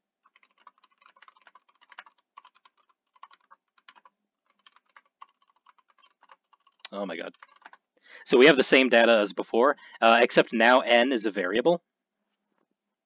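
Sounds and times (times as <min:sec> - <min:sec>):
typing on a keyboard: 0:00.2 - 0:07.8.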